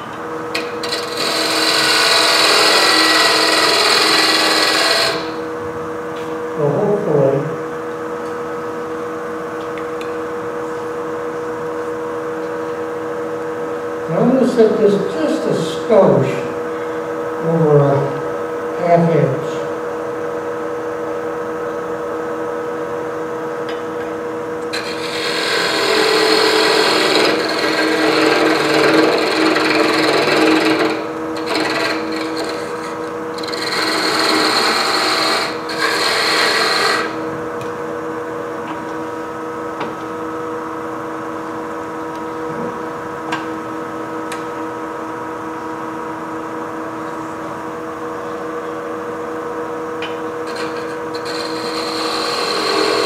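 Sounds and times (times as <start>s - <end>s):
wood lathe humming: 0.5s - 5.5s, 24.6s - 37.4s, 50.4s - 53.0s
turning tool scraping wood: 0.8s - 5.4s, 24.7s - 37.2s, 50.4s - 53.0s.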